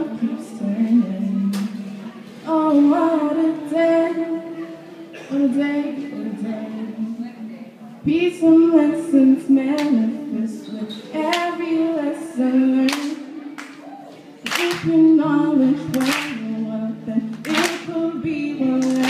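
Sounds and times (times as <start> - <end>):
woman singing unaccompanied: 0.0 - 7.4, 8.0 - 13.4, 14.4 - 19.0
hand claps: 12.9 - 13.8, 14.5 - 14.9, 15.9 - 16.4, 17.4 - 17.9, 18.8 - 19.0.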